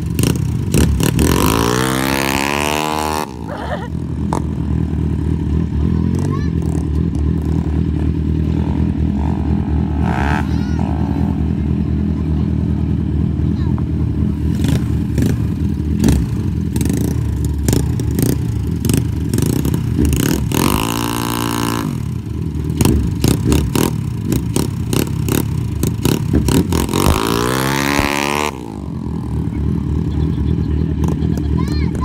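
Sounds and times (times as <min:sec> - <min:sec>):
motorcycle engine revving: 0:00.0 - 0:32.0
motorcycle engines running: 0:00.0 - 0:32.0.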